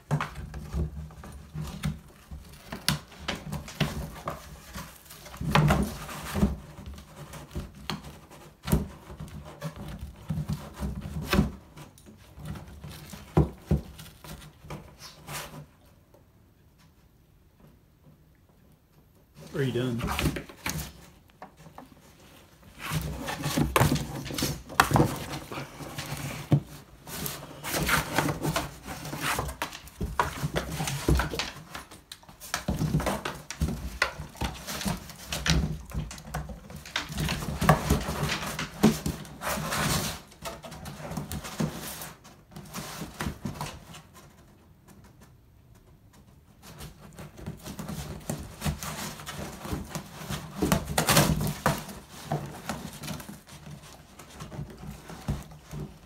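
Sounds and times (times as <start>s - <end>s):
dog tearing cardboard: 20.0s - 44.0s, 46.6s - 56.0s.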